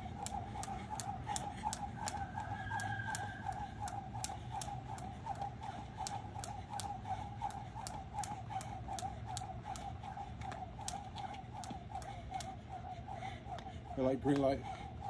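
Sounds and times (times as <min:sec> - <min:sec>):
wavering background tone: 0:00.0 - 0:06.0
jump rope slapping the ground: 0:00.0 - 0:14.9.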